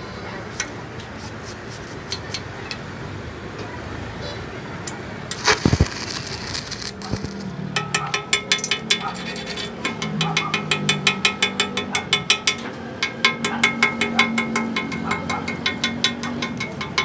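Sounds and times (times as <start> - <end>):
chipping hammer tapping metal: 5.3 - 17.0.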